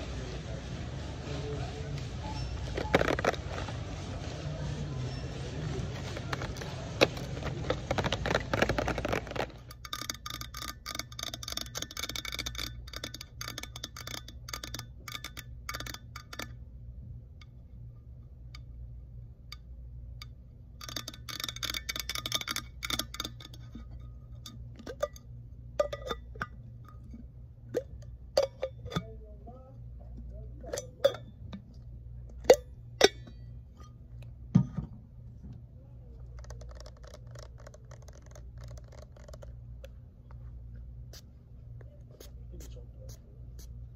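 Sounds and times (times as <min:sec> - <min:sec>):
toy packaging rustling: 0:05.9 - 0:09.6
fingernails tapping on metal tumbler: 0:06.0 - 0:16.7, 0:17.4 - 0:29.3, 0:30.1 - 0:34.9.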